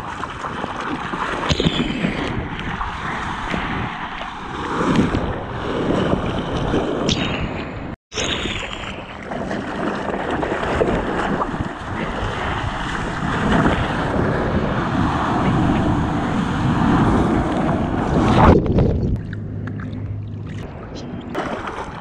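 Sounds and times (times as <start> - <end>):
wind on microphone: 1.1 - 22.0
ocean surf rushing: 11.9 - 18.6.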